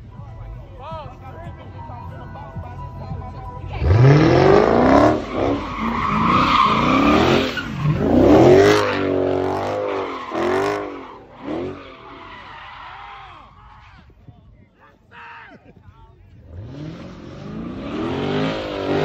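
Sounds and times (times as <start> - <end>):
car engine revving hard: 3.8 - 11.8, 16.4 - 19.0.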